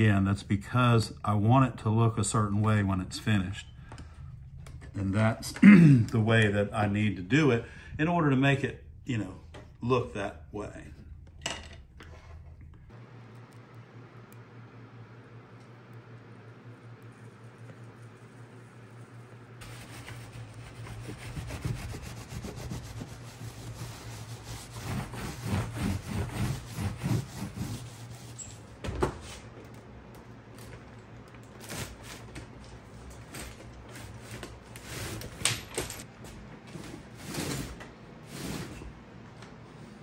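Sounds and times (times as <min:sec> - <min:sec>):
paper towel rubbing on glass: 0:17.5 - 0:28.6.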